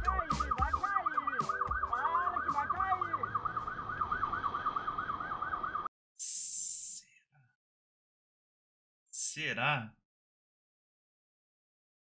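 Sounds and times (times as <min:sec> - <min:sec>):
police siren yelp: 0:00.0 - 0:05.9.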